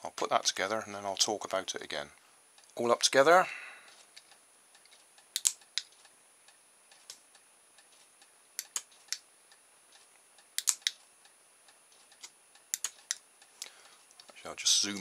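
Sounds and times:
sharp mechanical clicks: 4.2s - 6.1s, 8.6s - 9.3s, 9.9s - 11.1s, 11.9s - 13.7s.

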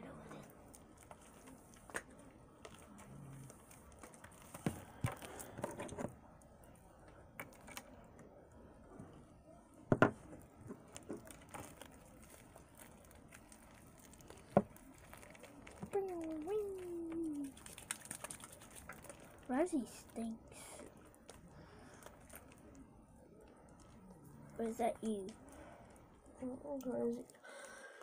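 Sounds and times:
slime squishing: 0.0s - 9.5s, 10.1s - 27.4s
slime popping: 10.4s - 20.3s.

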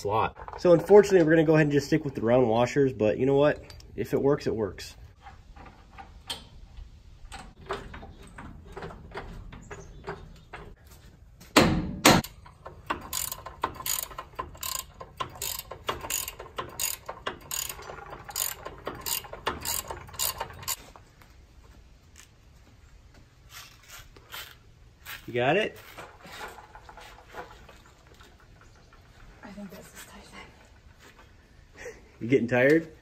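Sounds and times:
ratchet wrench clicking: 12.2s - 20.8s.

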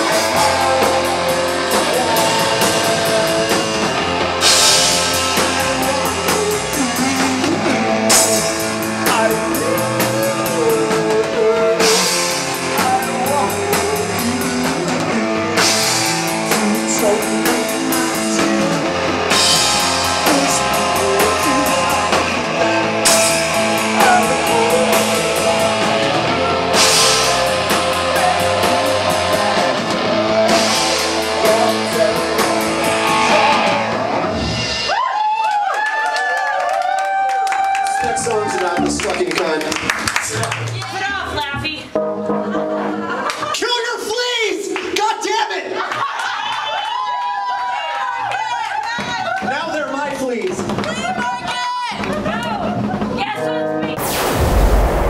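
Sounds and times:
electric guitar: 0.0s - 35.1s, 41.4s - 43.5s
drum kit: 0.0s - 43.5s, 48.8s - 55.0s
crash cymbal accents: 54.0s - 55.0s.

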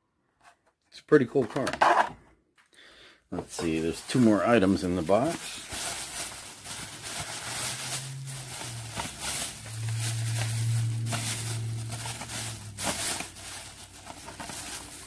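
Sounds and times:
plastic bag crinkling: 3.4s - 15.0s.

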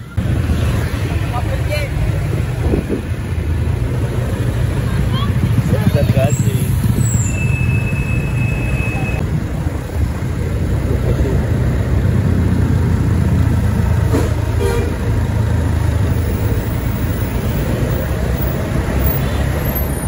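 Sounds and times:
bus diesel engine rumble: 0.0s - 20.0s
bus horn toot: 14.1s - 15.1s.

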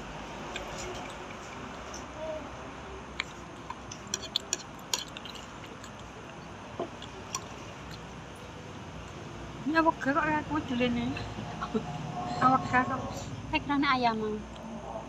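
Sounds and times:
steady background noise: 0.0s - 15.0s
chopsticks clicking on a bowl: 3.2s - 6.4s.

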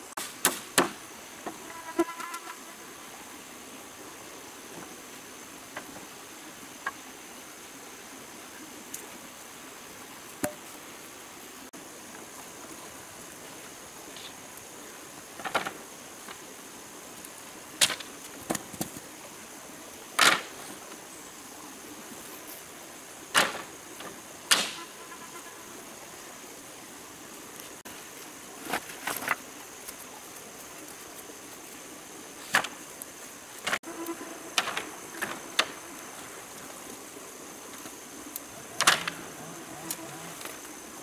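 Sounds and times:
faint hiss: 0.0s - 41.0s.

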